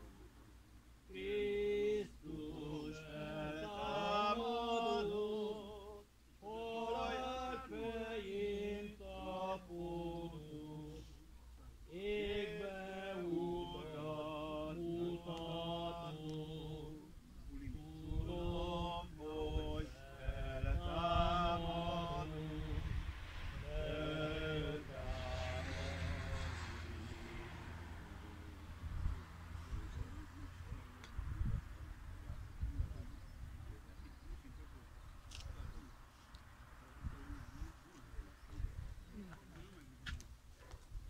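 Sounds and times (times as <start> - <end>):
voices singing a hymn: 1.0 - 29.1.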